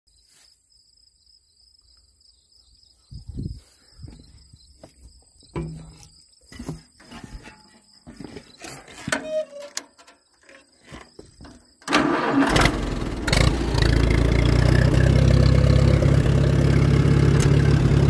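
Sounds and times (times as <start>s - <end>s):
insects trilling: 0.1s - 12.4s.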